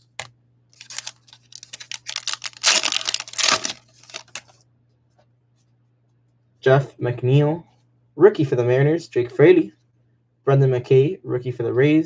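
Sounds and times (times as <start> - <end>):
plastic wrapper crinkling and tearing: 0.1 - 4.6.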